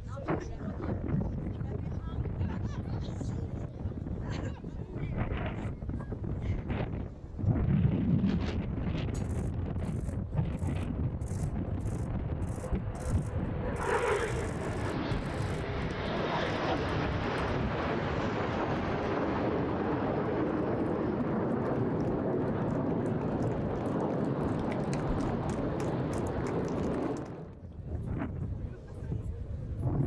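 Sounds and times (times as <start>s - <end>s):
jet engines running: 8.8s - 30.0s.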